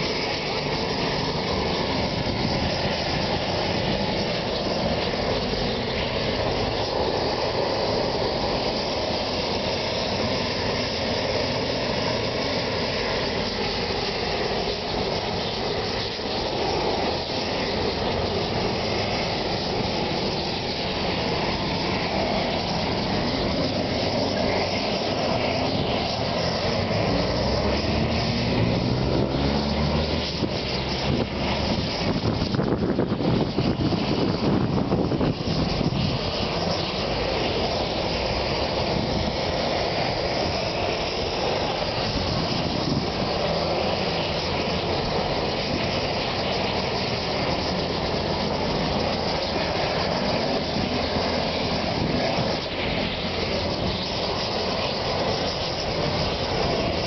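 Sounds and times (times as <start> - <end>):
city traffic noise: 0.0 - 57.0
vehicle engine pulling away: 24.2 - 32.0.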